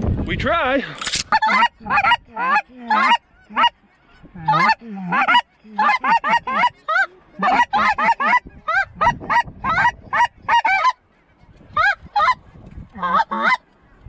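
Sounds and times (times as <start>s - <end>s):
goose honking: 1.3s - 3.8s, 4.4s - 11.0s, 11.8s - 12.4s, 13.0s - 13.6s.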